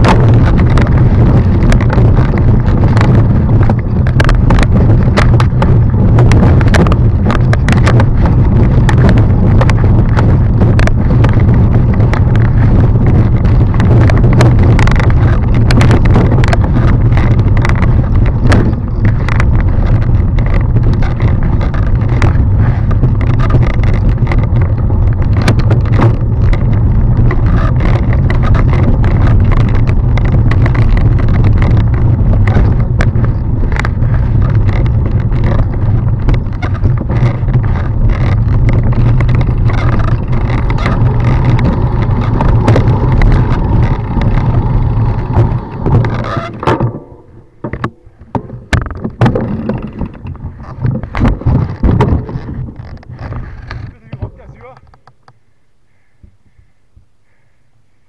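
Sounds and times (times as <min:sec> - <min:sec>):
mountain bike rattling and knocking: 0:00.0 - 0:55.4
wind rushing over microphone: 0:00.0 - 0:57.5.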